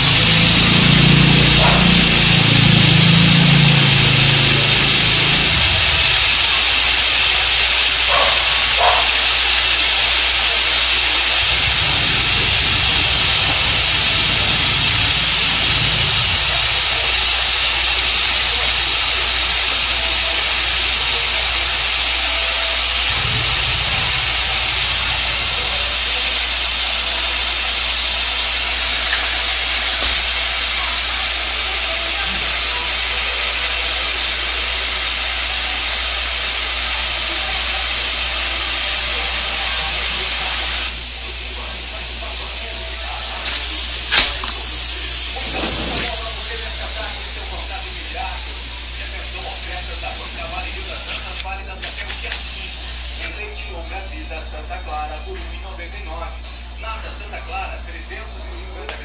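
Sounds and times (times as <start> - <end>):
spray gun air hissing: 0.0 - 53.3.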